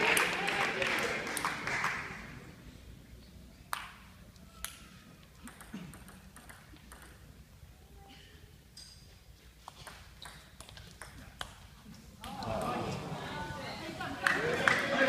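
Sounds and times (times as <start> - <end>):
ball ticking on bat and table: 5.4 - 7.2
table tennis ball clicks: 5.4 - 7.2.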